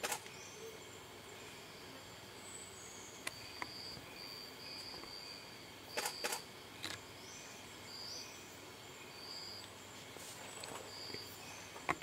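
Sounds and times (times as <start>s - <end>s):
sharp clicks: 0.0s - 0.3s, 6.0s - 7.0s
faint forest ambience: 0.0s - 12.0s.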